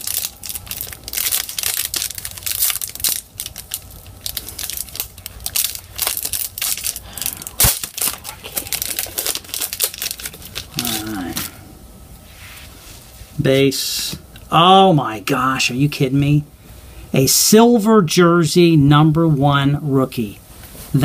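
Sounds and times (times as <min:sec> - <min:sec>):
foil wrapper tearing and crinkling: 0:00.0 - 0:11.5.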